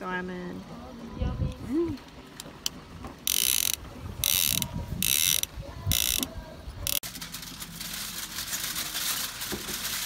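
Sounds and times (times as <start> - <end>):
mechanical ratchet clicking: 3.3 - 7.0
aluminium foil crinkling: 7.0 - 10.0.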